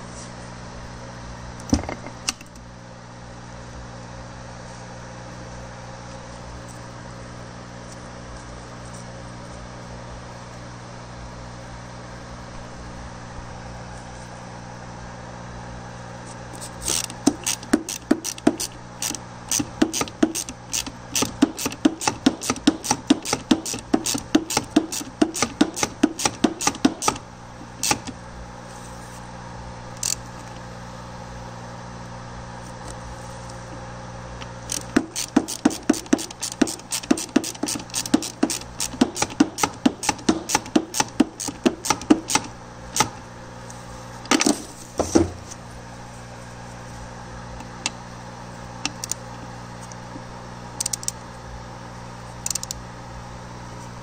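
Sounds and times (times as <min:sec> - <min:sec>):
hand ratchet clicking: 0:16.8 - 0:27.2, 0:27.8 - 0:28.1, 0:30.0 - 0:30.5, 0:34.7 - 0:43.2, 0:50.8 - 0:51.2, 0:52.4 - 0:52.8.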